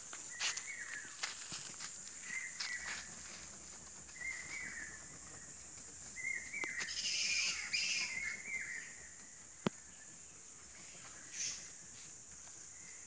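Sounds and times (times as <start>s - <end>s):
high insect drone: 0.0s - 13.0s
bats squawking: 6.7s - 8.8s.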